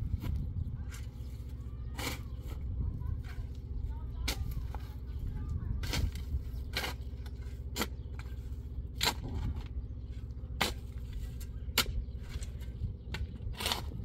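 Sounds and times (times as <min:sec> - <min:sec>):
steady low rumble: 0:00.0 - 0:14.0
spade scraping into stony soil: 0:00.2 - 0:03.5, 0:05.8 - 0:09.8, 0:10.6 - 0:14.0.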